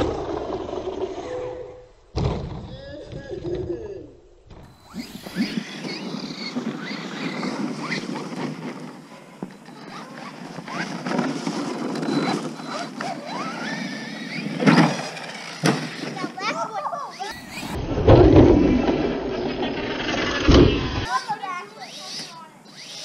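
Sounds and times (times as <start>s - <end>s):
drivetrain and tyre noise: 4.5s - 16.5s, 17.2s - 21.1s
toy truck electric motor whine: 4.7s - 23.0s.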